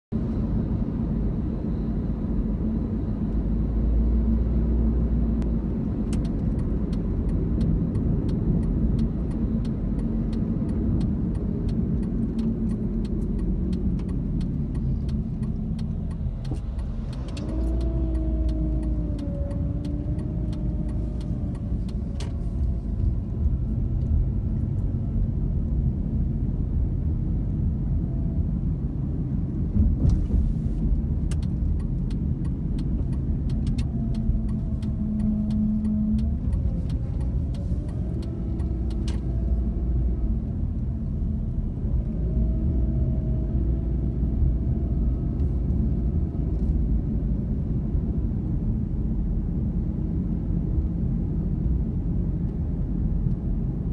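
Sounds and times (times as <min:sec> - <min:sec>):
car engine and tyres rumbling: 0:00.1 - 0:53.9
light ticks: 0:05.4 - 0:23.2, 0:30.0 - 0:39.6.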